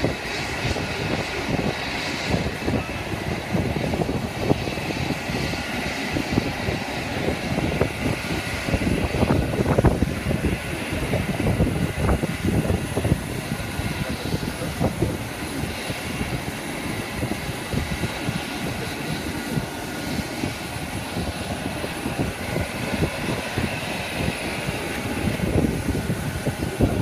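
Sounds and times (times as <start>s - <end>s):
jet airliner whine: 0.0s - 27.0s.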